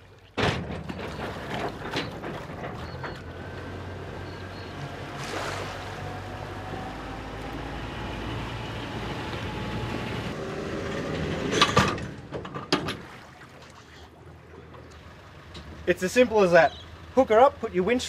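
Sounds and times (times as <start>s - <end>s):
boat engine running: 0.8s - 12.3s, 13.7s - 18.0s
loud metallic clanks: 11.4s - 13.0s.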